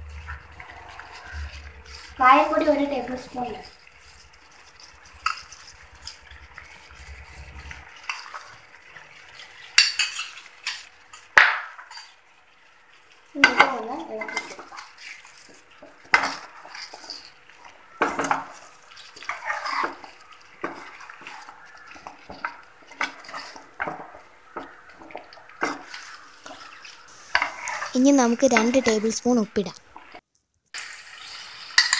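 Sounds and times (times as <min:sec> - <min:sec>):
spoon scraping and clinking pan: 0:09.3 - 0:11.2, 0:25.6 - 0:27.9, 0:30.8 - 0:31.9.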